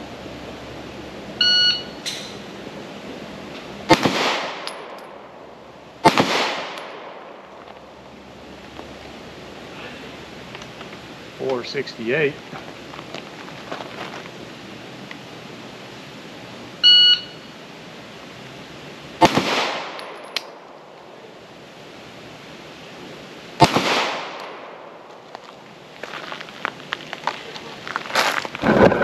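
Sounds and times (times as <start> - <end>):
shot timer beep: 1.4 - 2.0, 16.8 - 17.4
pistol shots with echo: 3.9 - 5.0, 6.0 - 7.2, 19.2 - 20.2, 23.6 - 24.8
footsteps crunching on gravel: 12.4 - 14.5, 25.1 - 29.0.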